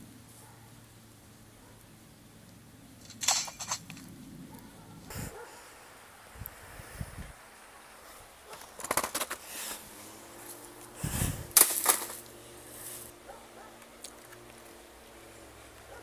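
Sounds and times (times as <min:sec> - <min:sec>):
rattling clicks and knocks: 0:03.0 - 0:04.0
laptop thudding on gravel: 0:08.7 - 0:09.4, 0:11.5 - 0:12.3.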